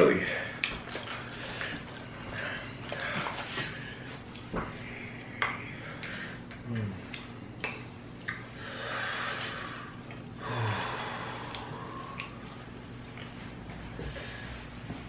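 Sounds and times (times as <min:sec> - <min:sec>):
people breathing hard and sniffing: 0:01.1 - 0:04.2, 0:08.6 - 0:12.7, 0:13.8 - 0:15.0
low groans: 0:09.4 - 0:14.9.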